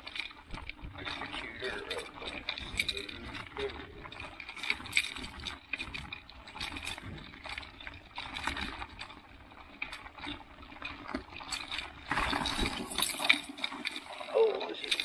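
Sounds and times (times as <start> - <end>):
bicycle tyres crunching snow: 0.0 - 14.9
small rattling clicks from bike: 0.0 - 15.0.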